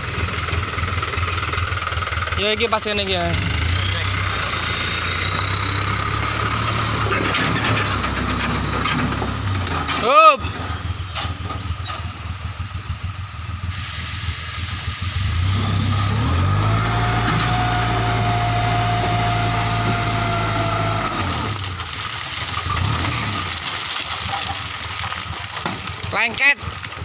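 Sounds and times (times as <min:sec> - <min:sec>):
diesel engine revving: 0:00.0 - 0:25.6
hydraulic whine: 0:03.3 - 0:09.7, 0:13.7 - 0:21.8
hiss: 0:13.6 - 0:15.6.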